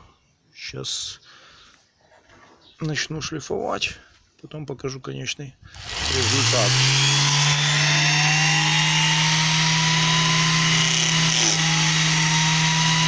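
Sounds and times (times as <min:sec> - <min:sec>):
orbital sander motor hum: 0:05.8 - 0:13.0.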